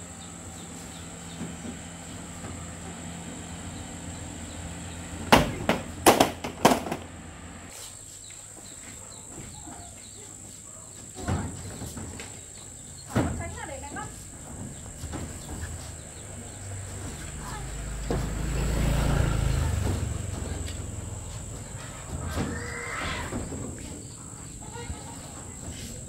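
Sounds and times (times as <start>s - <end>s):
sharp knocks: 5.2s - 7.2s
insect drone: 14.2s - 26.0s.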